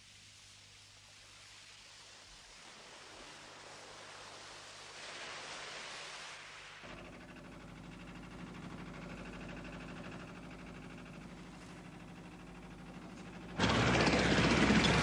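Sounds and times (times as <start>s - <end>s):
surf washing on rocks: 2.5s - 7.4s
boat engine droning: 6.8s - 15.0s.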